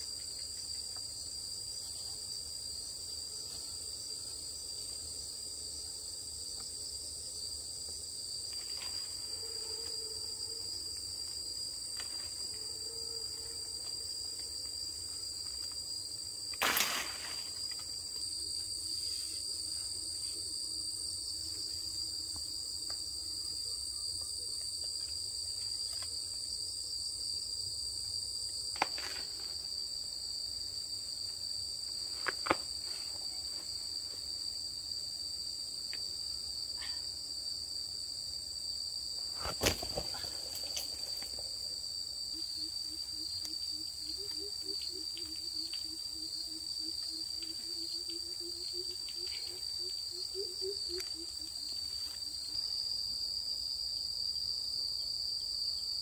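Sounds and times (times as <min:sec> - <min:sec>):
insect chorus: 0:00.0 - 0:56.0.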